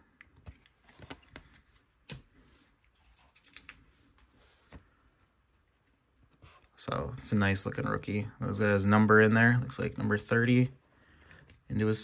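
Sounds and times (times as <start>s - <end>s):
trading cards clicking and rustling: 0.3s - 2.4s.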